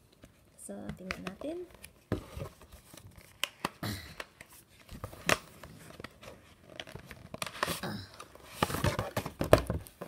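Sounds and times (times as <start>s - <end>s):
box clicks and taps: 0.8s - 2.0s
cardboard scraping rustles: 8.4s - 10.0s.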